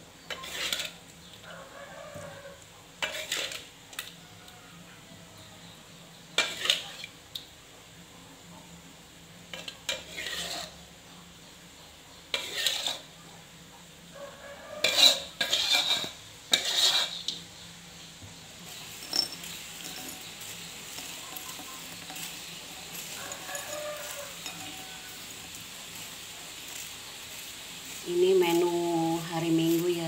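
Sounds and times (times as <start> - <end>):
metal spoon scraping cookware: 0.2 - 1.1, 3.0 - 4.1, 6.4 - 7.1, 9.5 - 10.8, 12.3 - 13.1, 14.7 - 17.4, 18.7 - 26.1.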